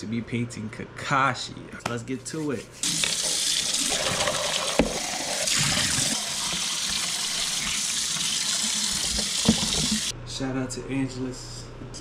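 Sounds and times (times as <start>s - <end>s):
tap water running into sink: 2.8s - 10.1s.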